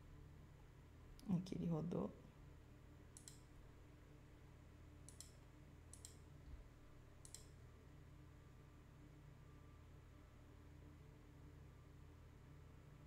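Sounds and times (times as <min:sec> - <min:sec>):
faint computer mouse clicks: 0:03.2 - 0:03.5, 0:05.0 - 0:06.2, 0:07.2 - 0:07.6.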